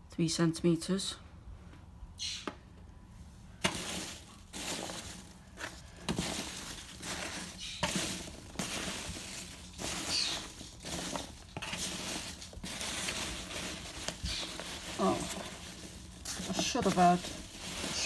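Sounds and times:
packing peanuts rustling: 0:03.6 - 0:18.0.

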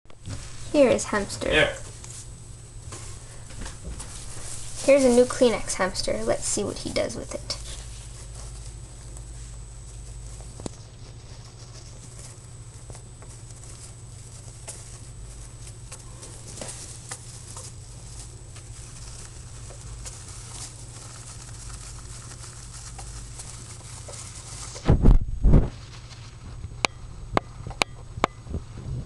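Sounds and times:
steady low hum: 0:00.1 - 0:29.0
hamster rustling tissue: 0:00.3 - 0:26.6.

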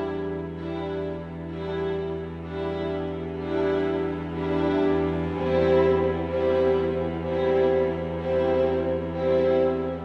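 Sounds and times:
slow music of long held notes: 0:00.0 - 0:10.0.

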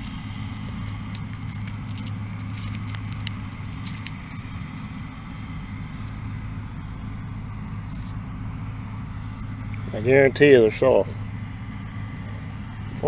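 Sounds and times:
pods crackling and clicking: 0:00.0 - 0:06.4
combines humming: 0:00.0 - 0:13.0.

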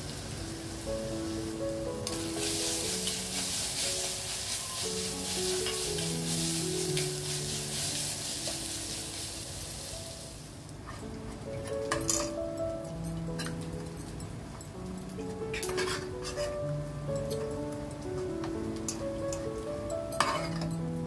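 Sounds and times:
food sizzling in hot oil: 0:00.0 - 0:12.4, 0:15.1 - 0:21.0
slow background music: 0:00.0 - 0:21.0
metal ladle stirring pot: 0:15.5 - 0:16.6.

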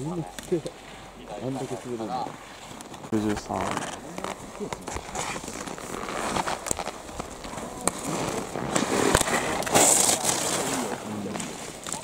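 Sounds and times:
ski edges scraping on ice: 0:02.4 - 0:12.0.

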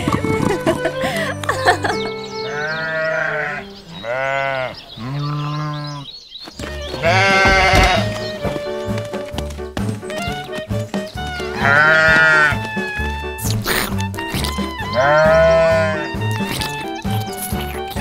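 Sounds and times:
background music: 0:00.0 - 0:04.2, 0:06.6 - 0:18.0
sheep bleating: 0:02.4 - 0:06.1, 0:06.8 - 0:08.5, 0:11.3 - 0:13.1, 0:14.2 - 0:18.0.

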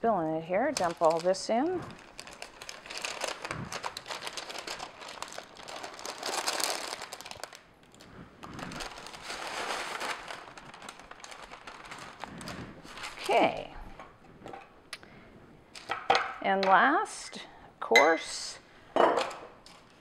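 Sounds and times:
paper crinkling and rustling: 0:00.6 - 0:13.7.

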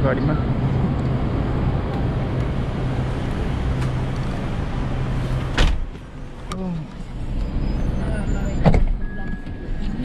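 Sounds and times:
street traffic noise: 0:00.0 - 0:10.0
car door slamming: 0:05.5 - 0:06.0.

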